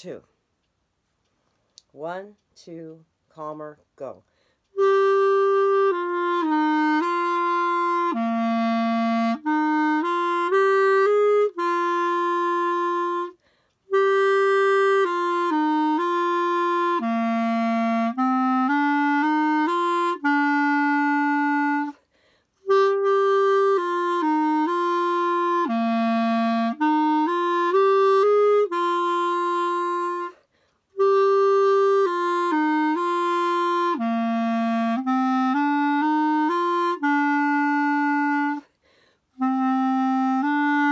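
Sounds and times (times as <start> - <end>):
solo clarinet melody: 4.6 - 40.9.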